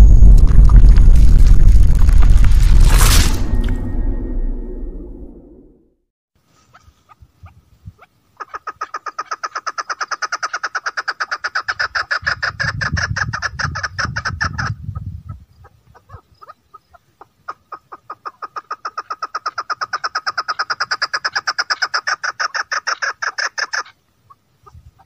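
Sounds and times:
low rumble: 0:00.0 - 0:06.0
partridge calling chuk notes: 0:06.6 - 0:25.0.

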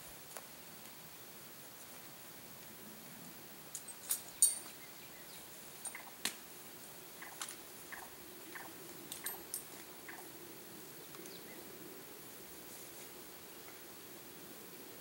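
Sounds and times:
buckles clicking: 0:03.8 - 0:04.7, 0:09.1 - 0:10.2.

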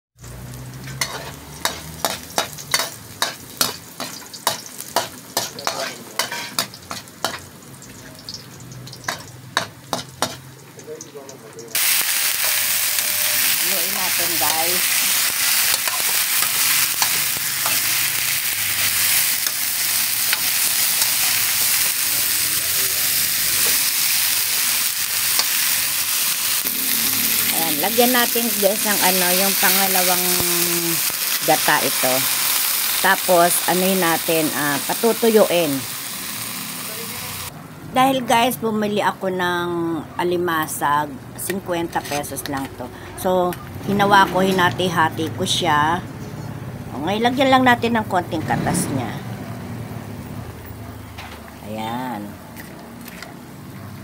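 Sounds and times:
vegetables sizzling: 0:00.2 - 0:37.5
metal spatula scraping a wok: 0:00.8 - 0:07.5, 0:12.3 - 0:22.0, 0:41.8 - 0:42.4.

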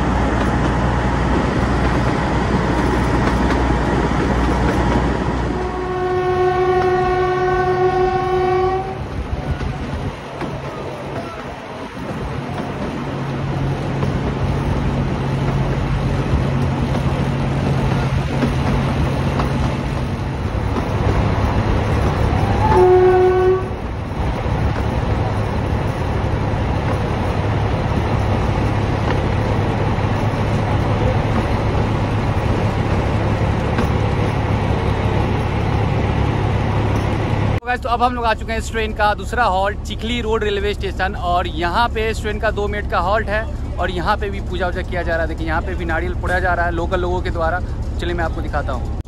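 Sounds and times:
diesel locomotive engine drone: 0:00.0 - 0:49.0
rail noise: 0:00.0 - 0:49.0
locomotive horn blast: 0:05.5 - 0:09.1, 0:22.4 - 0:23.9.

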